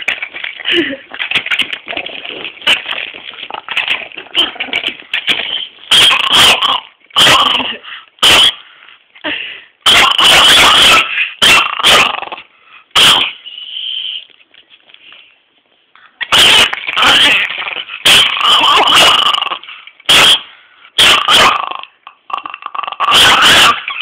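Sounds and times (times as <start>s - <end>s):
dog yipping and whimpering: 23.4s - 24.0s.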